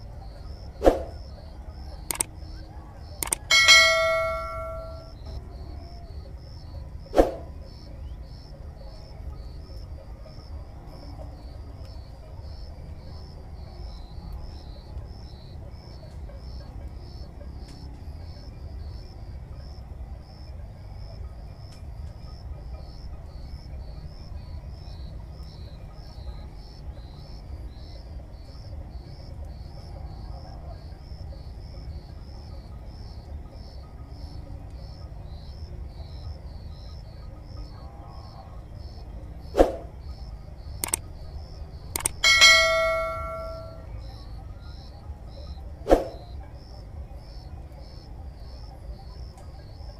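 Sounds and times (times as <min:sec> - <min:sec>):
insects chirping: 0:00.0 - 0:49.9
sharp knock with ring: 0:03.2 - 0:05.1, 0:42.0 - 0:43.8.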